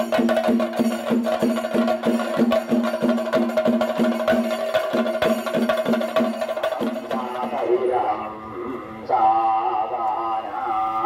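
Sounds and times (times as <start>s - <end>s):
drums beaten with sticks: 0.0s - 7.9s.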